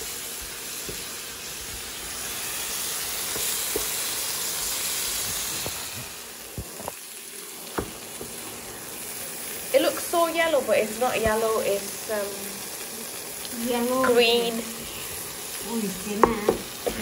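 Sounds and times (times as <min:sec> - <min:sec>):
food sizzling in frying pan: 0:00.0 - 0:17.0
wooden spoon knocking pan: 0:07.7 - 0:08.4, 0:16.2 - 0:17.0.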